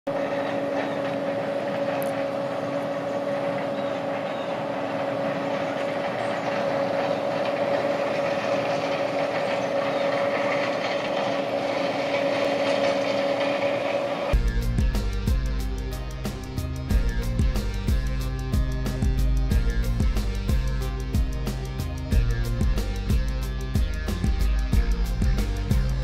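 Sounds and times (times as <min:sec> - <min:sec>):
combine harvester running: 0:00.1 - 0:26.0.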